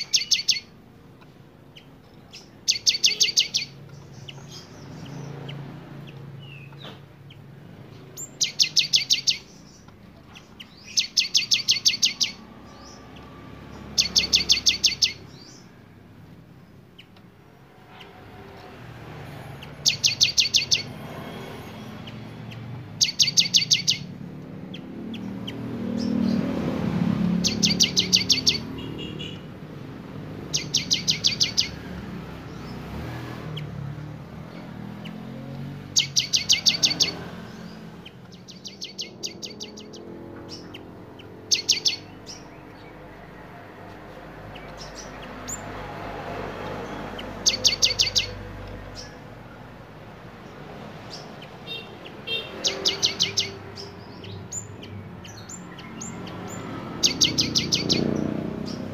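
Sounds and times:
bird singing sharp high notes: 0.0s - 0.8s, 1.8s - 5.6s, 8.0s - 15.8s, 19.3s - 29.5s, 30.4s - 33.7s, 34.9s - 43.0s, 46.8s - 49.2s, 51.1s - 58.9s.

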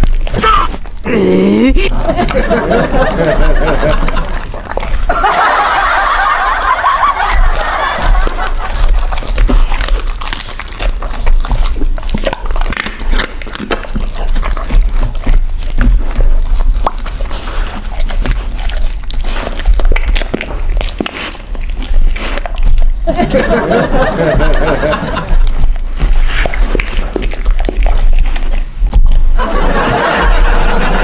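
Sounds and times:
dog chewing and crunching meat: 0.0s - 31.0s.

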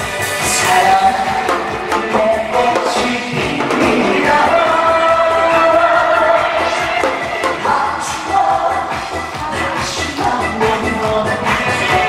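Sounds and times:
backing music with steady beat: 0.0s - 12.0s
man singing into microphone: 0.4s - 12.0s.

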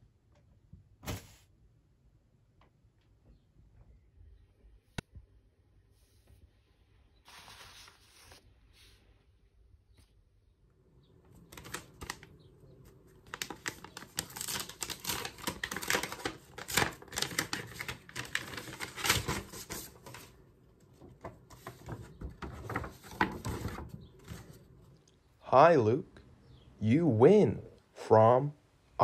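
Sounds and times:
paper rustling and crackling: 7.3s - 9.0s, 11.1s - 24.8s.

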